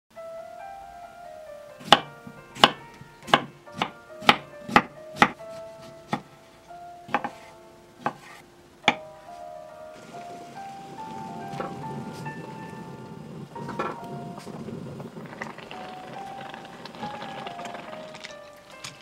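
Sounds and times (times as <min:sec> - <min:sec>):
light background music: 0:00.1 - 0:19.0
boiling water bubbling: 0:09.9 - 0:19.0.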